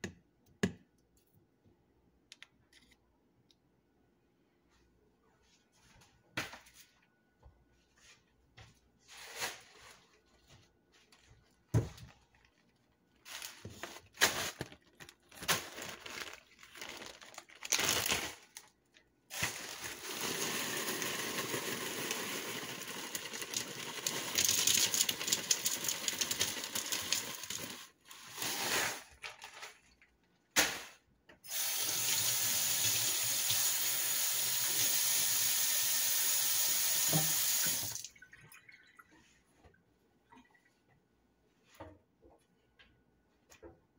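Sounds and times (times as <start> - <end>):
plastic bag handling: 9.1 - 30.0
ice pouring into plastic cup: 19.3 - 29.9.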